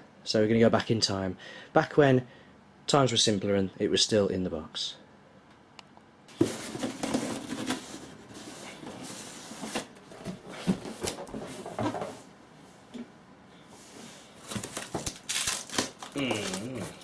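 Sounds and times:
cardboard scraping and rustling: 6.3s - 12.3s, 13.9s - 15.9s.

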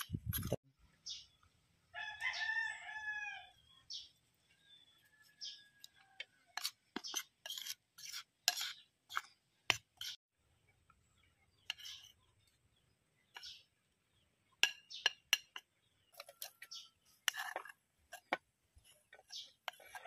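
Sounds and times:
metal spoon clinking on bowl: 14.6s - 16.6s.

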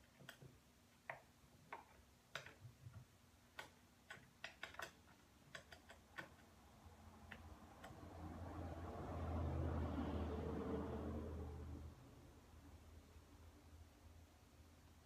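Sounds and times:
light clicks and taps of small parts: 0.0s - 6.6s.

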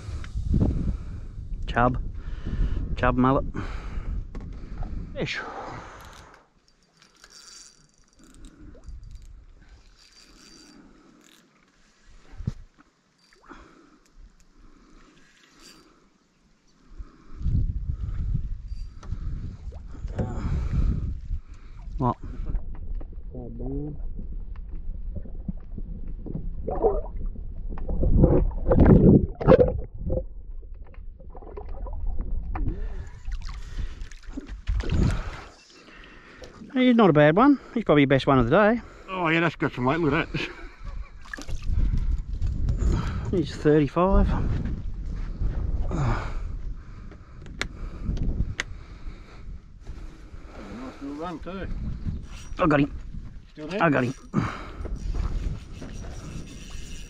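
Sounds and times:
fishing reel clicks and scrapes: 5.9s - 12.0s, 15.2s - 16.0s, 52.2s - 52.7s, 53.7s - 54.3s, 54.9s - 57.0s.

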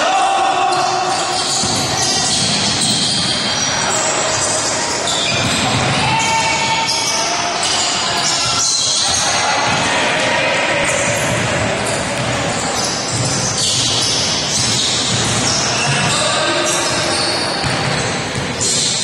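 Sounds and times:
reverberant crowd noise: 0.0s - 19.0s
shoes squeaking: 1.1s - 9.4s, 10.8s - 19.0s
basketball bouncing on floor: 11.1s - 12.4s, 17.6s - 18.6s.

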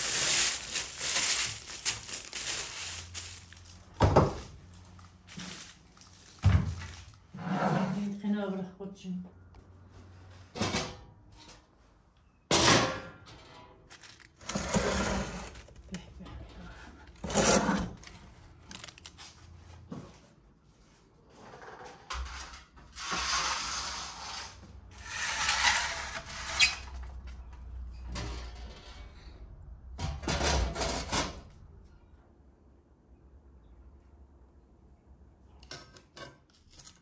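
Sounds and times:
metal oven door scraping: 14.4s - 15.7s, 17.2s - 18.0s, 21.5s - 27.0s.

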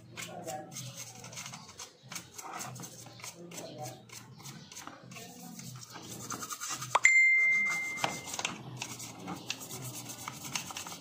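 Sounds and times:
brush scrubbing plastic: 0.0s - 7.0s, 7.7s - 11.0s
bell-like ding: 7.0s - 8.3s.

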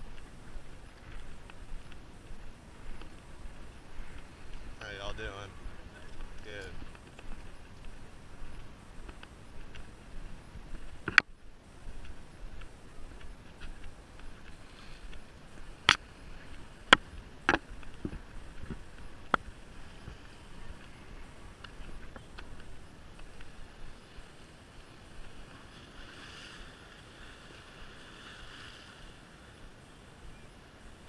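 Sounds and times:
low steady hiss: 0.0s - 31.0s
small waves washing against rocks: 23.1s - 29.5s.

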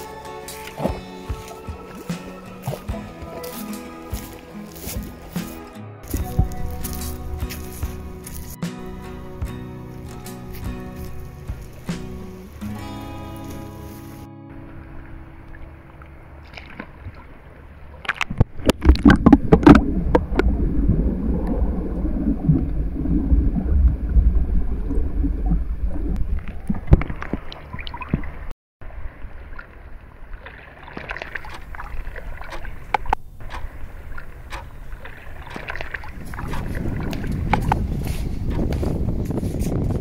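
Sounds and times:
water lapping: 0.0s - 40.0s
water splashing: 0.0s - 40.0s
underwater rumble and gurgle: 14.5s - 40.0s.

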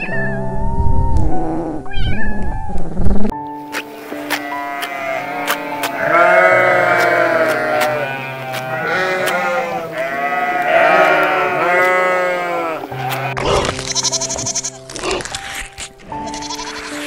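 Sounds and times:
background music with light beat: 3.3s - 17.0s
sheep bleating: 4.2s - 15.0s, 16.1s - 17.0s.

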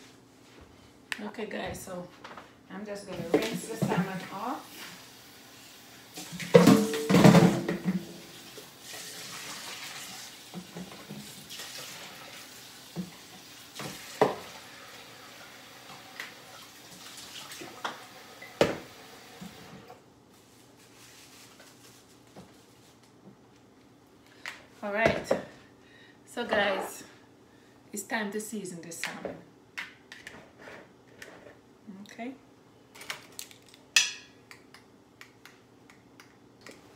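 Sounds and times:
tap water running: 7.6s - 20.0s.

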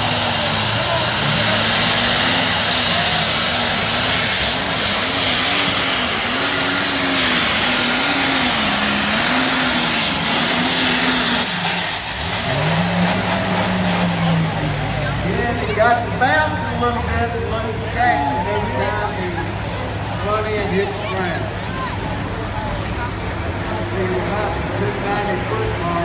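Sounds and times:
tractor engine running flat out: 0.0s - 15.6s.

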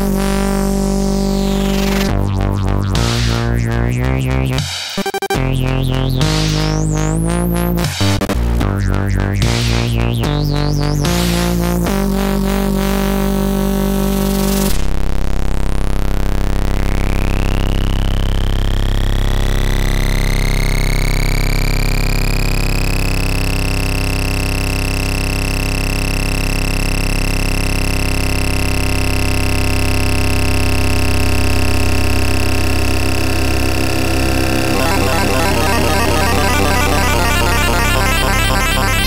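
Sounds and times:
synthesized tone rising: 32.2s - 39.0s.

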